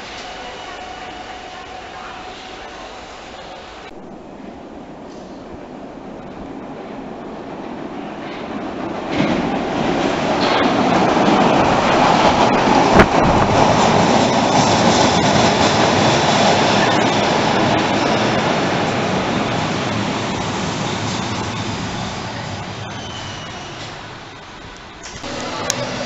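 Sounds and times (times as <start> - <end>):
train wheels rumbling on rails: 0.0 - 26.0
high brake squeal: 19.4 - 24.1.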